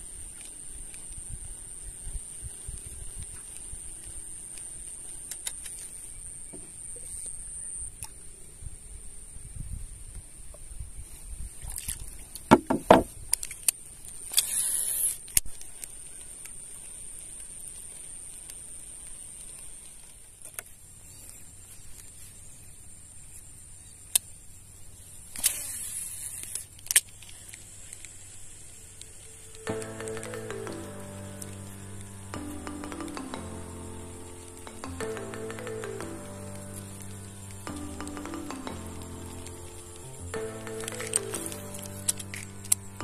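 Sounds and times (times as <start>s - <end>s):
knocks on boat hull: 12.5s - 13.1s
high-pitched insect drone: 27.9s - 43.0s.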